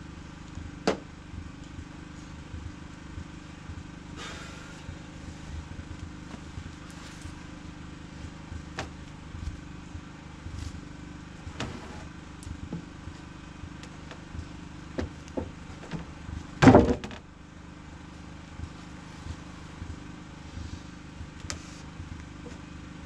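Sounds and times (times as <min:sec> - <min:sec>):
steady low hum: 0:00.0 - 0:23.0
knocks of wood on wood: 0:00.8 - 0:01.0, 0:15.0 - 0:17.2.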